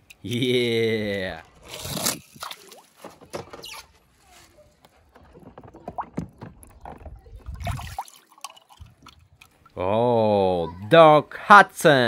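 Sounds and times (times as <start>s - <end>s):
water sloshing in a plastic tub: 2.2s - 9.8s.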